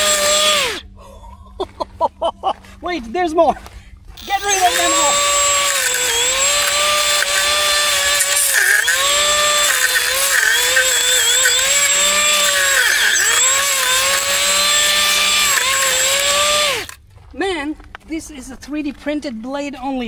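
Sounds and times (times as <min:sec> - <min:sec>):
motor spinning blade whine: 0:00.0 - 0:00.9, 0:04.2 - 0:17.0.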